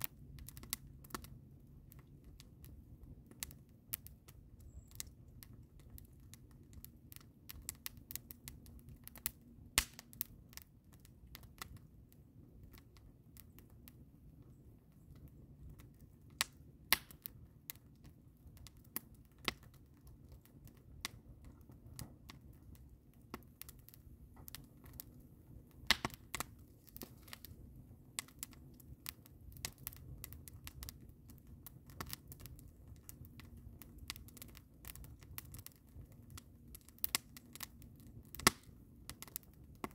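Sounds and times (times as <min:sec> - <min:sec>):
wood fire crackling: 0:00.0 - 0:39.9.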